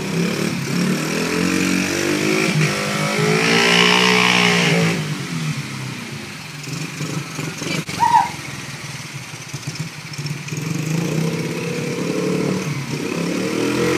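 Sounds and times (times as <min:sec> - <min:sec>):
small motorbike engine running: 0:02.6 - 0:13.9
brief high squeak: 0:07.9 - 0:08.4.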